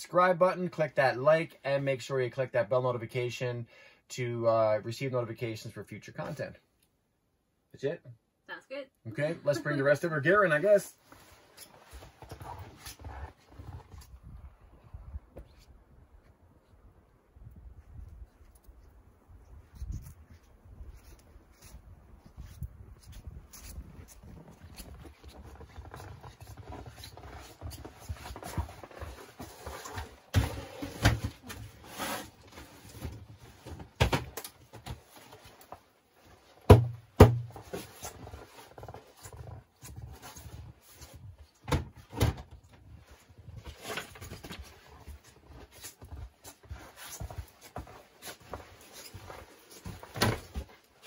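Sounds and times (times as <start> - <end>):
footsteps crunching in snow: 11.0 - 14.4, 19.4 - 30.7, 42.9 - 51.0.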